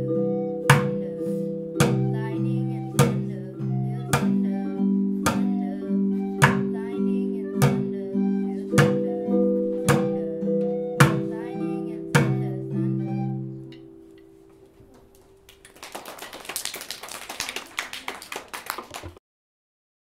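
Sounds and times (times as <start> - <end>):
acoustic guitar strumming: 0.0 - 15.4
people clapping: 15.0 - 19.2.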